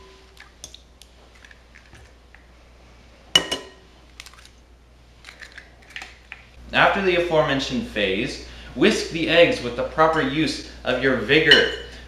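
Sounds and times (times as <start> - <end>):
eggshell crackling: 0.0 - 2.5, 4.0 - 6.6.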